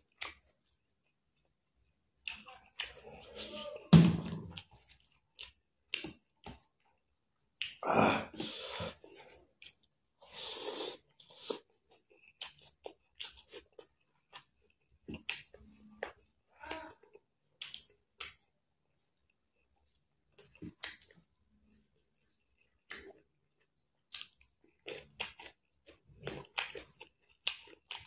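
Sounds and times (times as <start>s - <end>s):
person chewing food: 0.0s - 28.0s.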